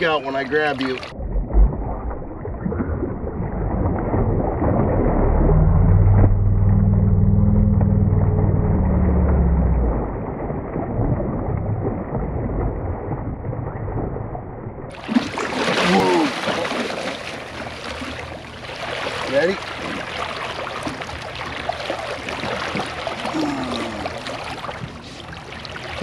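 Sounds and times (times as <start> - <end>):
boat motor droning: 5.2 - 10.8, 14.9 - 26.0.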